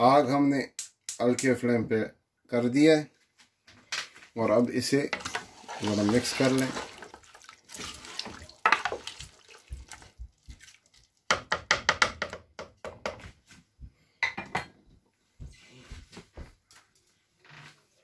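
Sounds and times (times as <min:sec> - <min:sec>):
spoon stirring wet food in pot: 0:05.2 - 0:11.7.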